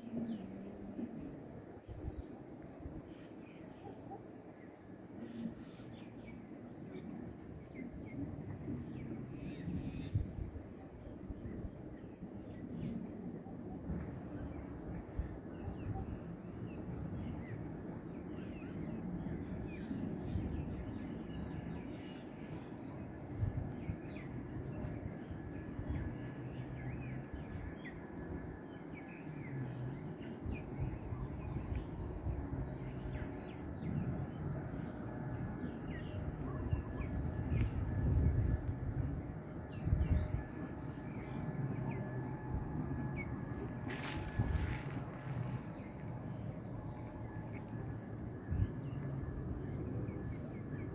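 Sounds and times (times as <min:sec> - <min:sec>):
low outdoor rumble: 0:00.0 - 0:50.9
wind buffeting microphone: 0:07.2 - 0:18.0, 0:23.0 - 0:28.6, 0:30.0 - 0:50.9.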